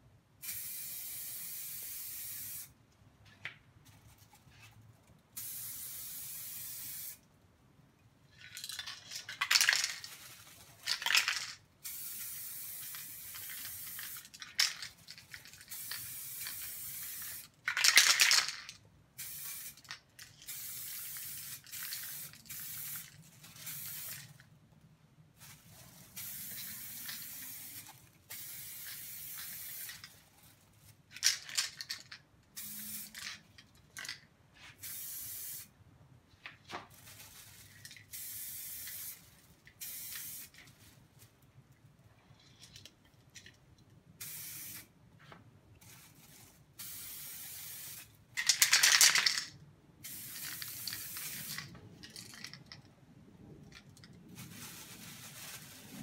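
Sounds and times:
aerosol paint spraying: 0:00.4 - 0:02.7, 0:05.4 - 0:07.2, 0:10.8 - 0:18.2, 0:19.2 - 0:19.9, 0:20.5 - 0:24.3, 0:26.0 - 0:30.1, 0:32.6 - 0:33.1, 0:34.6 - 0:35.7, 0:38.1 - 0:39.2, 0:39.8 - 0:40.6, 0:44.2 - 0:44.9, 0:46.2 - 0:48.1, 0:50.0 - 0:51.7
spray can rattling when shaken: 0:05.4 - 0:07.2, 0:08.3 - 0:24.5, 0:25.4 - 0:35.7, 0:36.9 - 0:40.9, 0:44.2 - 0:44.9, 0:45.8 - 0:52.9, 0:53.6 - 0:56.0.

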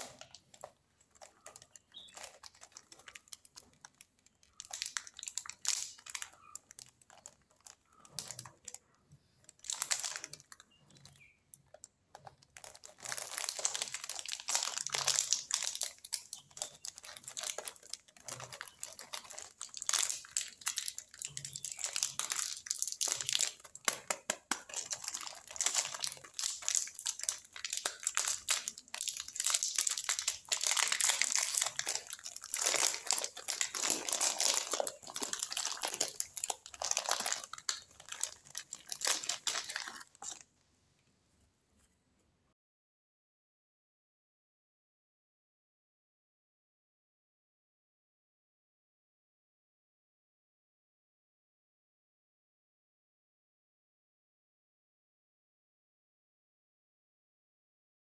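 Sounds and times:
plastic wrapper crinkling: 0:00.0 - 0:40.5.

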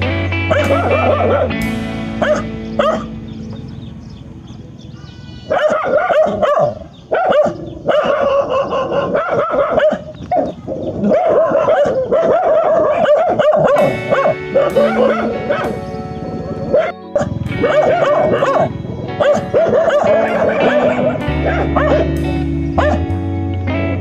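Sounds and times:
background music: 0:00.0 - 0:06.8, 0:12.5 - 0:24.0
dog barking: 0:00.5 - 0:01.6, 0:02.2 - 0:03.1, 0:05.4 - 0:22.2, 0:22.8 - 0:23.1.

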